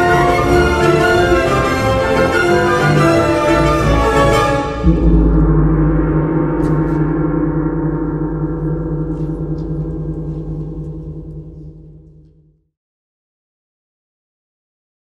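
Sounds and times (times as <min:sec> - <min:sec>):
deep gong ringing: 0:04.8 - 0:12.5.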